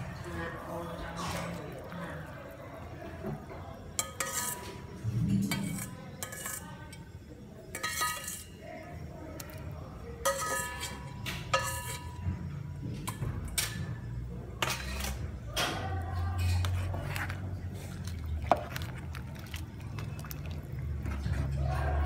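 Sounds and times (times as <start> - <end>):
metal utensils clinking: 3.9 - 7.1, 7.7 - 8.6, 10.2 - 12.3, 14.6 - 22.0.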